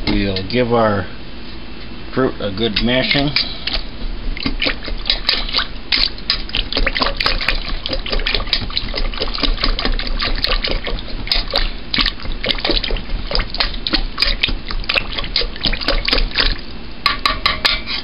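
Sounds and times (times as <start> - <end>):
wet squelching of mashed fruit: 3.0 - 16.8.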